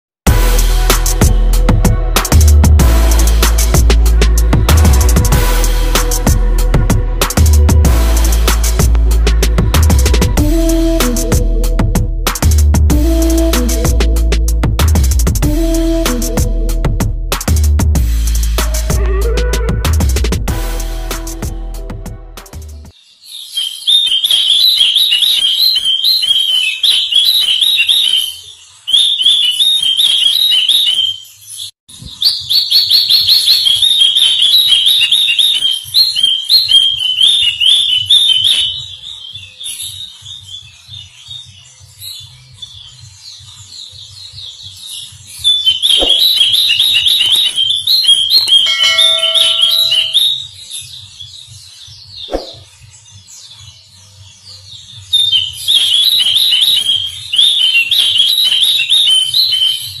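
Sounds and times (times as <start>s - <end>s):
songbird chirping: 22.9s - 60.0s
soft bird twittering: 45.4s - 53.6s.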